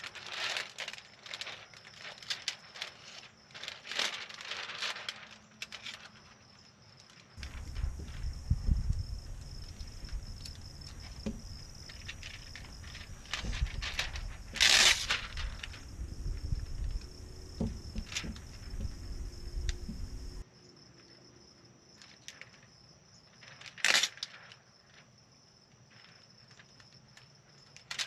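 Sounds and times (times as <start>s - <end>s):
film rubbing and crinkling: 0.0s - 20.4s, 23.4s - 25.0s, 27.6s - 28.0s
high insect drone: 7.4s - 20.4s
wind rumble on microphone: 7.4s - 20.4s.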